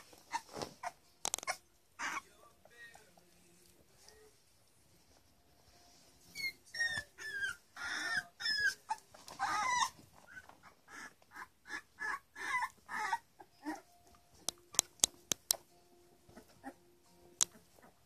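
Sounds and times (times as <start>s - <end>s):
puppies squeaking and whimpering: 0.0s - 3.1s, 5.9s - 15.2s, 16.3s - 16.8s, 17.4s - 18.0s.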